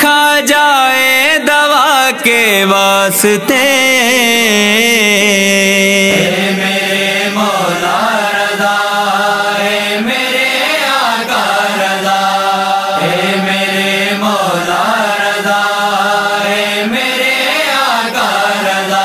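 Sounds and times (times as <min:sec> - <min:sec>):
vocal chorus chanting: 0:00.0 - 0:19.0
steady low drone: 0:06.1 - 0:07.6.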